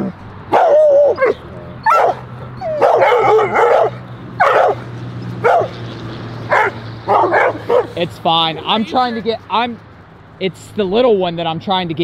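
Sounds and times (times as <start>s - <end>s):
dog barking: 0.5s - 4.8s, 5.4s - 5.8s, 6.5s - 8.0s.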